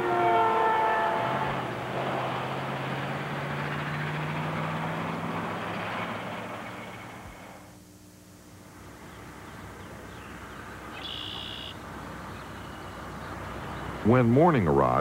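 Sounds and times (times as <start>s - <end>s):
traffic engine drone and tyre noise: 0.0s - 7.8s, 8.5s - 15.0s
vehicle engine passing by: 1.1s - 7.7s.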